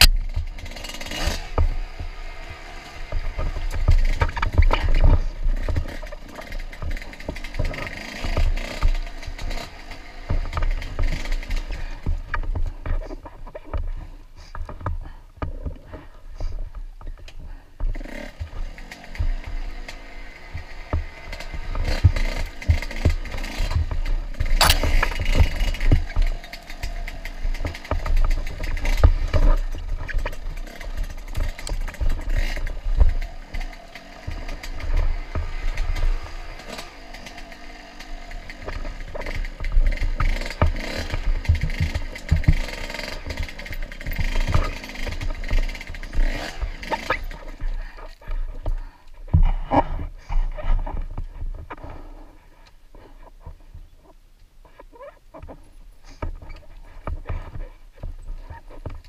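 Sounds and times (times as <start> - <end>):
dirt bike engine revving: 0.0 - 12.8, 17.8 - 51.0
branches scraping helmet camera: 0.0 - 59.0
knocks and rattles from bumps: 0.0 - 59.0.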